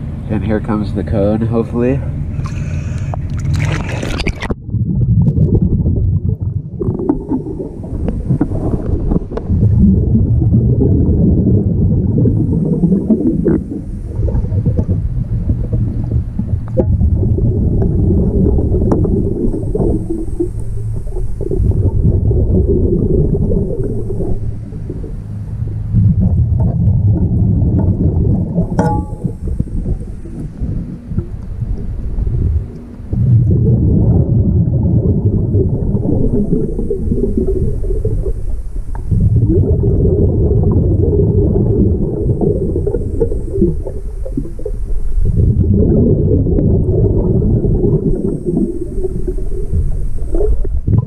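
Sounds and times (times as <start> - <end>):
underwater diver breathing: 2.1 - 4.2
water splashing: 2.3 - 51.0.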